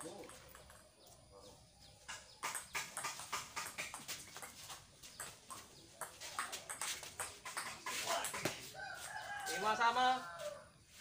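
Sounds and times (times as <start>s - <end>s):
table tennis ball hits: 2.1s - 8.7s.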